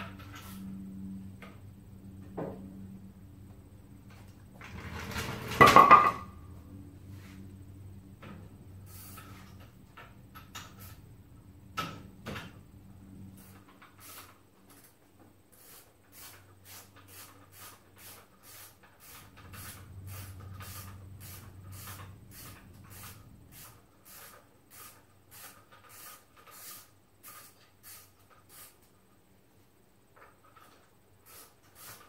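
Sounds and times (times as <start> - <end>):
low steady hum: 0.0 - 13.4.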